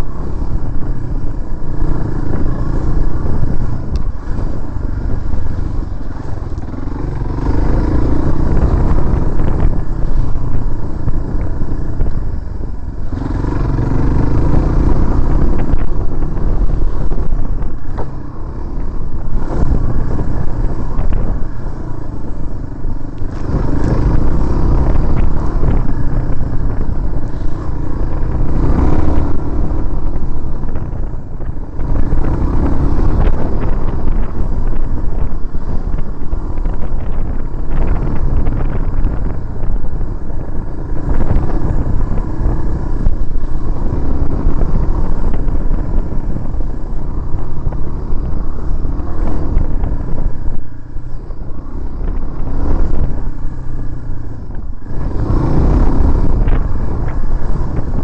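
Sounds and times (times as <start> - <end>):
motorcycle engine revving: 0.0 - 58.0
wind on microphone: 0.0 - 58.0.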